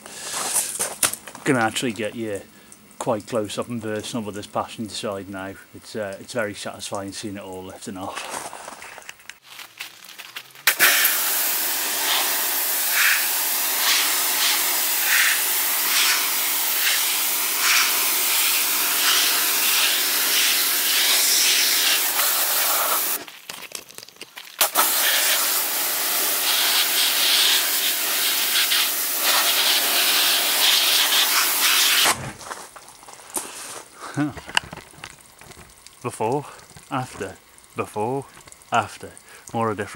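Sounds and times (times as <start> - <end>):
pressure washer spraying water: 10.6 - 23.3, 24.6 - 32.2.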